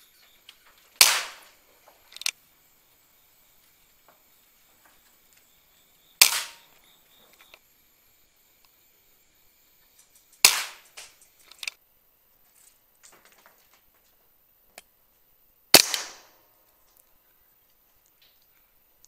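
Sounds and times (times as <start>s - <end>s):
air rifle shots: 0.9s - 2.4s, 6.2s - 6.8s, 10.4s - 11.8s, 15.7s - 16.5s.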